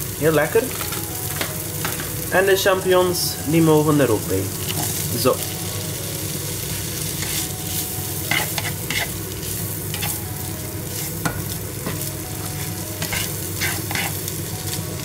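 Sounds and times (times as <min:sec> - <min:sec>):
food sizzling in a frying pan: 0:00.0 - 0:15.0
spatula scraping a pan: 0:08.3 - 0:09.2, 0:13.0 - 0:14.3.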